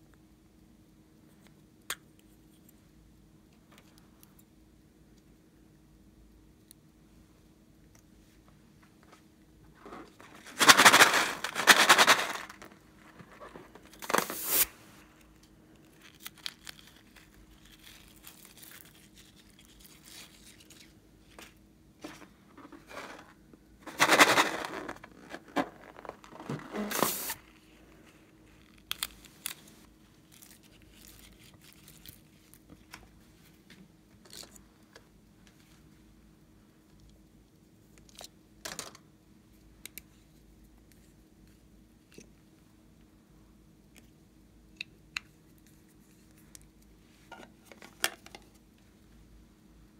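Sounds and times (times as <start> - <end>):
faint handling noises: 7.9 - 36.1, 45.2 - 49.2
crinkly rubbing of rubber balloons: 22.1 - 28.7.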